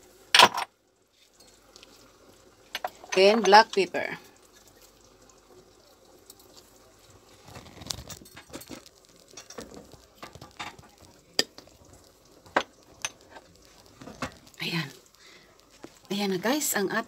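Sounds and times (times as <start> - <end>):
rustling and tapping: 7.4 - 14.9.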